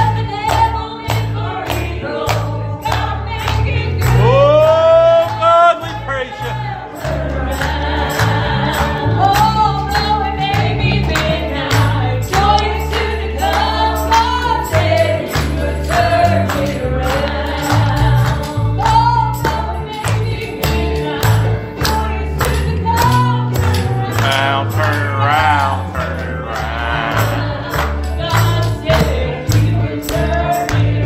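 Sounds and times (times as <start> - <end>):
bass notes: 0.0 - 31.0
gospel voices singing: 0.0 - 31.0
band accompaniment: 2.9 - 31.0
steady percussive beat: 20.7 - 31.0.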